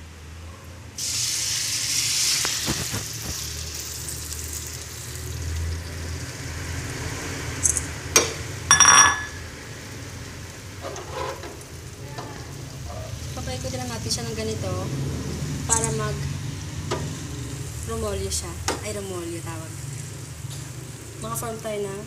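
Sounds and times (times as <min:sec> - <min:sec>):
eggs sizzling in hot oil: 0:01.0 - 0:22.0
metal clattering: 0:08.7 - 0:09.4.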